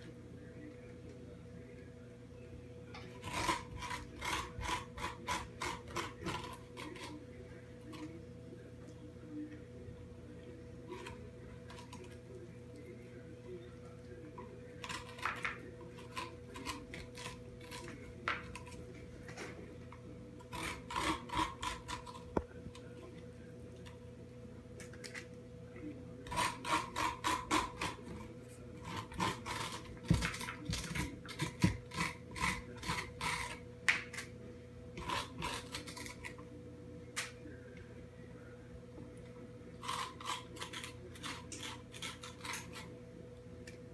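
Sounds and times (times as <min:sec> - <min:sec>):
faint hum: 0:00.0 - 0:43.9
spoon scraping squash: 0:03.0 - 0:08.2, 0:14.5 - 0:22.9, 0:26.3 - 0:34.3, 0:34.9 - 0:36.4, 0:39.8 - 0:43.0.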